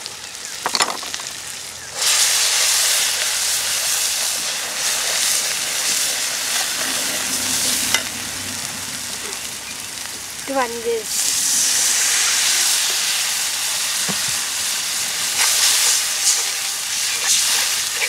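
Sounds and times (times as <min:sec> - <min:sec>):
onions sizzling in hot oil: 0:00.0 - 0:18.0
spatula stirring in pan: 0:15.2 - 0:18.0.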